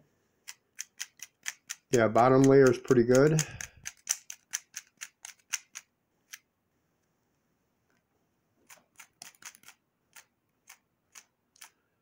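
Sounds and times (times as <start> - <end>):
speed cube clicking: 0.4 - 6.4, 8.7 - 11.8.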